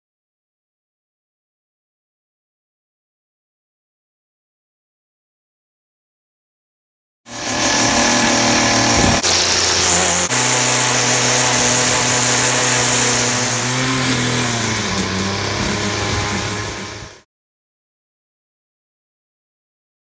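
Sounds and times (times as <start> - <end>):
string trimmer engine revving: 7.3 - 17.2
trimmer line cutting hiss: 7.3 - 17.2.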